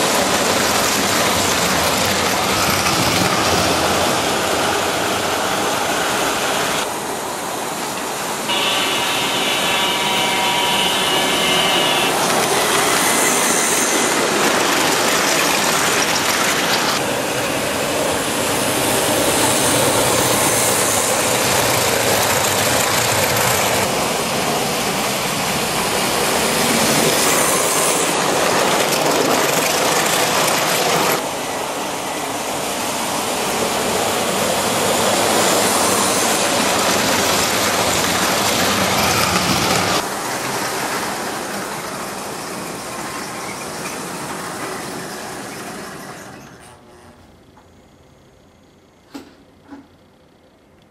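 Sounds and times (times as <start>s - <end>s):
electronic train horn: 8.4s - 13.4s.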